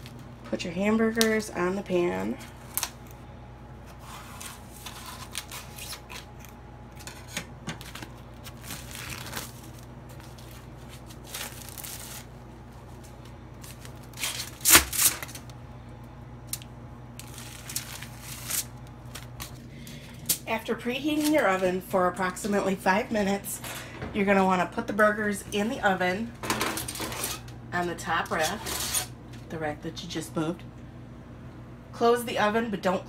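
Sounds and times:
steady low hum: 0.0 - 33.0
plastic packaging crinkling: 4.0 - 15.6, 16.5 - 19.6.

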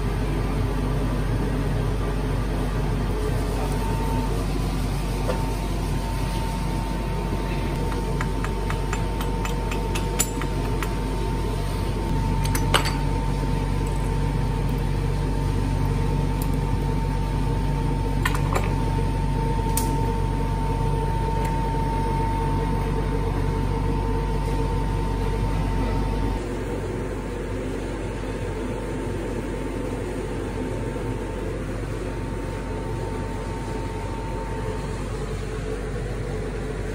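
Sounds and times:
mechanical hum with high whine: 0.0 - 36.9
sharp clicks and knocks: 7.8 - 11.0.

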